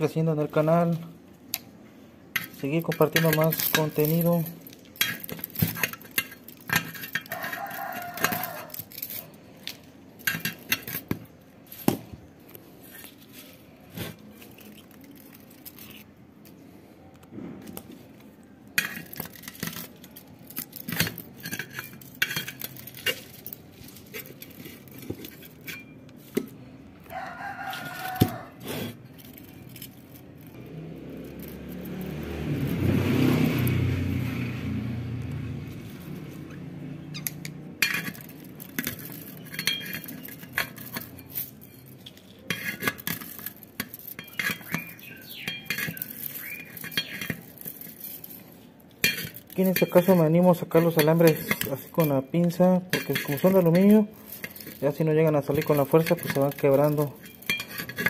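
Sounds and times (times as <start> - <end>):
pliers clicking and scraping metal: 2.3 - 16.6, 18.7 - 32.7, 37.2 - 58.0
rooster crowing: 7.2 - 8.9, 27.0 - 28.6.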